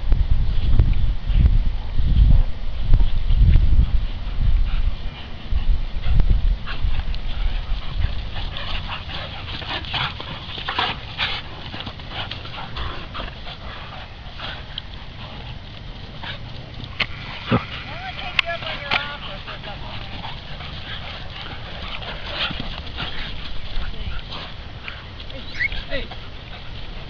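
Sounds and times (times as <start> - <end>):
wind rumble on microphone: 0.0 - 27.0
dogs yipping and whimpering: 24.8 - 26.8.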